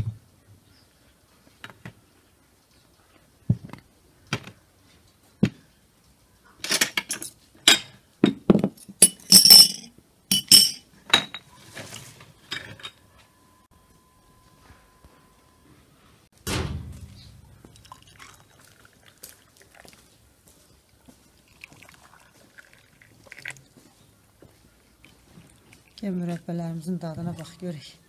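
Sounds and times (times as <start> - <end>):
glass clinking on metal tray: 9.0 - 11.4
glass ringing: 9.0 - 11.4.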